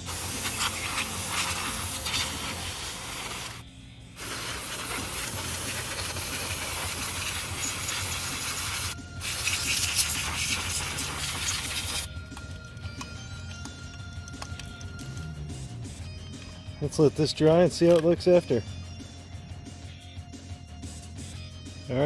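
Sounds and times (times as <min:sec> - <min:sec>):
aerosol can spraying: 0:00.0 - 0:03.6, 0:04.2 - 0:12.1.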